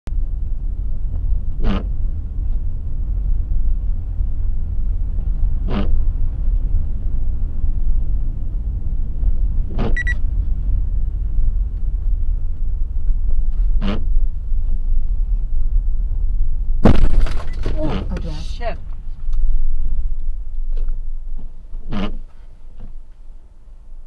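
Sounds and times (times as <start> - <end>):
road and engine rumble inside car: 0.1 - 24.0
brief high beep: 10.0 - 10.2.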